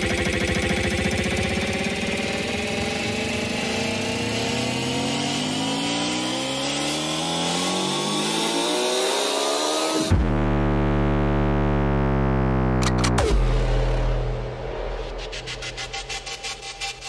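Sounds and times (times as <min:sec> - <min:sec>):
fast pulsing techno rhythm: 0:00.0 - 0:05.3
rising synth sweep: 0:00.0 - 0:17.0
deep bass: 0:10.1 - 0:17.0.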